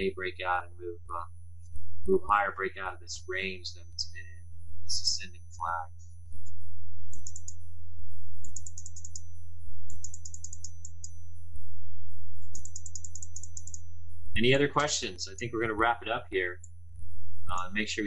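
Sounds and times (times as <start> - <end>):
low electrical hum: 0.0 - 9.3, 9.9 - 18.0
computer keyboard typing: 7.2 - 7.6, 8.4 - 9.2, 9.9 - 11.1, 12.5 - 13.8.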